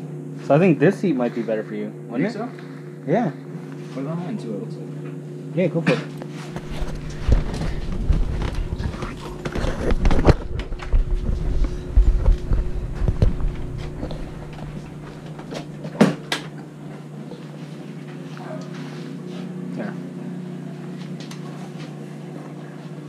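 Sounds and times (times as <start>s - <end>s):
steady low hum: 0.0s - 23.0s
microphone handling rumble: 6.5s - 15.8s.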